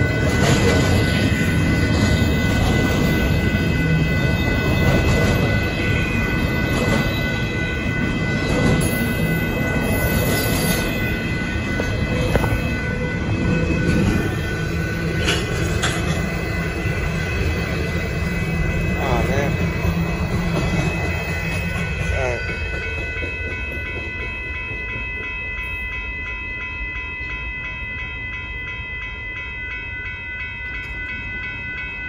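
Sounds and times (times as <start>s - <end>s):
freight train wheels rumbling: 0.0s - 32.0s.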